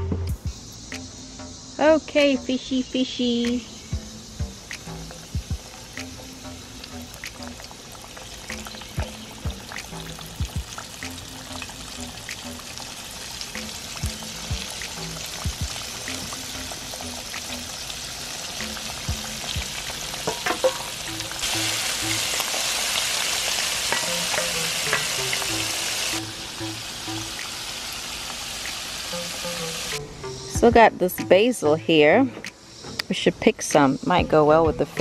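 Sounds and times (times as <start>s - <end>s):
fish sizzling in hot oil: 4.1s - 30.0s
metal tongs knocking: 20.3s - 21.0s.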